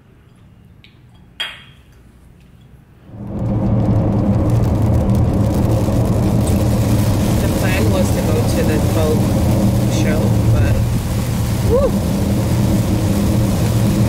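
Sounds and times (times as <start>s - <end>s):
car road and engine noise: 3.1s - 14.0s.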